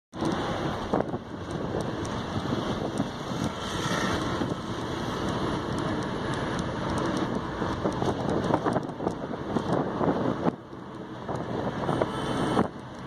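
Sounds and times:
road and wind noise in car: 0.1s - 13.0s.

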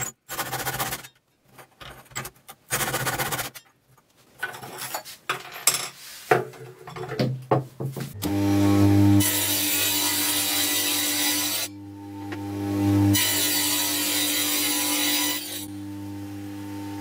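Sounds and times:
scrapes and knocks: 0.0s - 8.2s
table saw motor hum: 8.2s - 17.0s.

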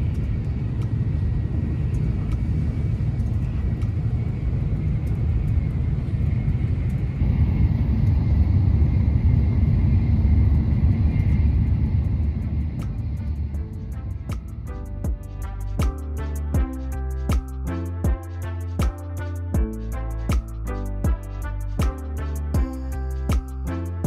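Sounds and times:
train rumble inside carriage: 0.0s - 14.8s.

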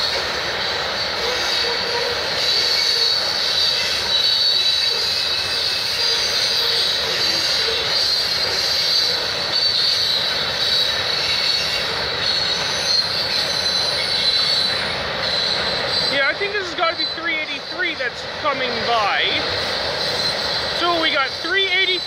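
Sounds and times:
freight train rumbling past: 0.0s - 22.0s
wheels squealing on rails: 0.0s - 22.0s.

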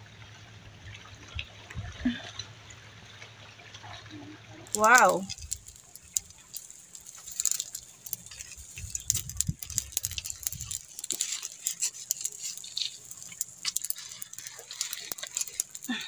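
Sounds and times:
fire crackling and popping: 3.9s - 16.0s.

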